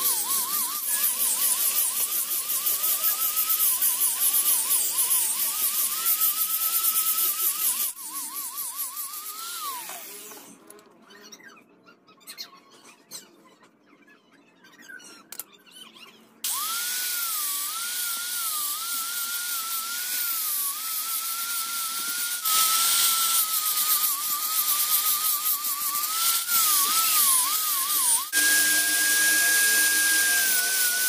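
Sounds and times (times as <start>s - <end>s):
sanding hiss on wood: 0.0s - 10.4s, 17.3s - 31.0s
rotary tool whining: 0.0s - 10.9s, 16.4s - 31.0s.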